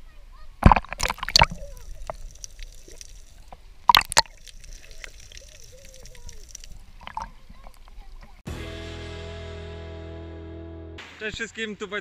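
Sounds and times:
water gurgling underwater: 0.6 - 8.4.

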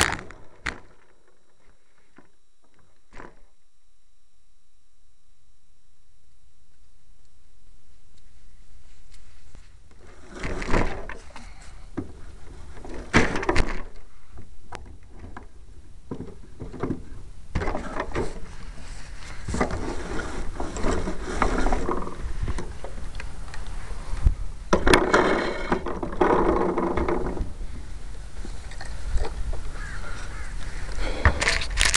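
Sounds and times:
rustling and clicking handling noise: 6.7 - 31.9.

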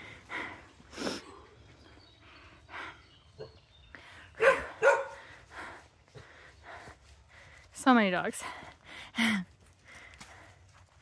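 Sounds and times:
dog barking: 4.4 - 5.2.

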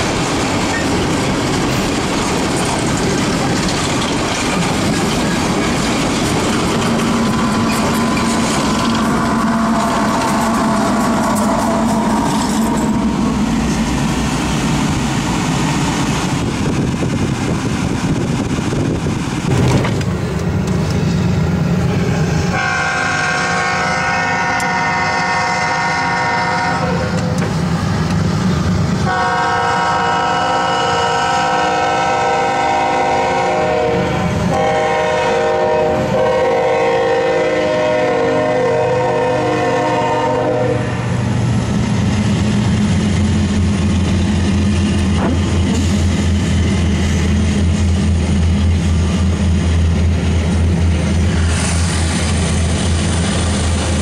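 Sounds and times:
freight train rumbling: 0.0 - 54.0
locomotive horn: 7.4 - 13.1, 22.5 - 27.4, 29.0 - 41.2.

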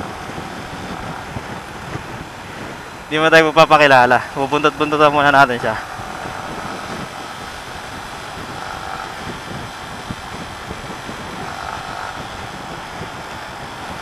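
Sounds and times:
motorcycle engine running: 0.0 - 14.0
wind and road noise: 0.0 - 14.0.

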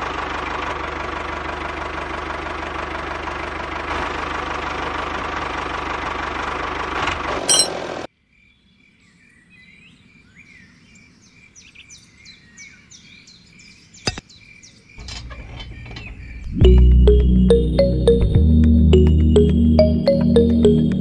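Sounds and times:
loud engine running: 0.0 - 8.0
birds chirping: 8.4 - 18.2.

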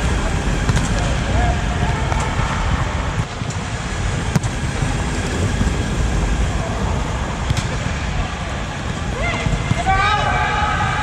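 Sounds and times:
volleyball being hit: 0.6 - 3.6, 4.2 - 5.0, 7.4 - 8.0.

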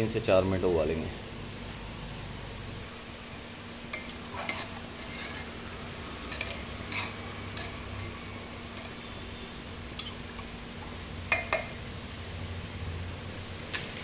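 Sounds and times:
low steady hiss: 0.0 - 14.0
metal spoon scraping pot: 4.0 - 5.6, 6.3 - 8.2.

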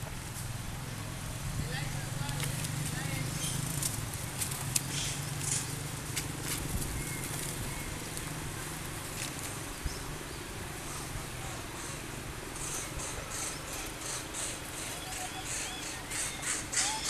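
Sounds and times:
monkeys scuffling in dry leaves: 0.2 - 17.0.

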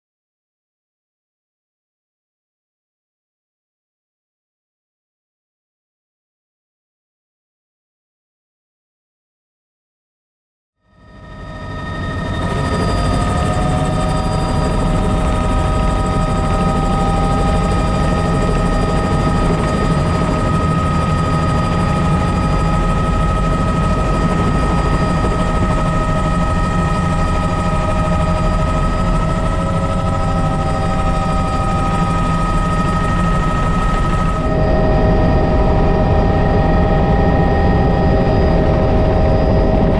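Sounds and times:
helicopter turbine whine: 10.8 - 39.9
rotor and airflow rumble: 12.2 - 39.9.

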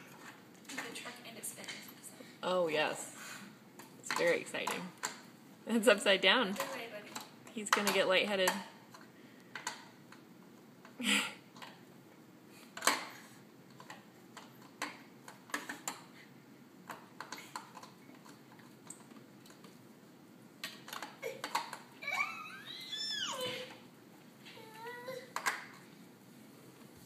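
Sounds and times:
plastic toy clicks and knocks: 20.6 - 21.9, 25.4 - 25.8.

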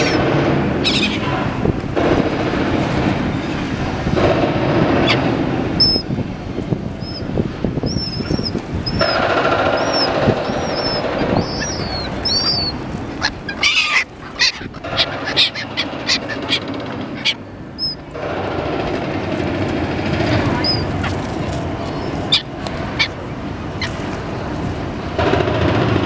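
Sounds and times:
gulls squawking: 0.0 - 1.6, 2.4 - 6.2, 6.9 - 24.6
city din: 0.0 - 26.0
small bird chirping: 7.0 - 18.0.

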